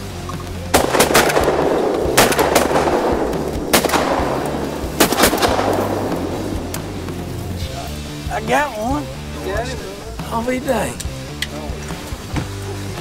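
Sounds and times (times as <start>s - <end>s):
shotgun shots echoing: 0.7s - 7.6s.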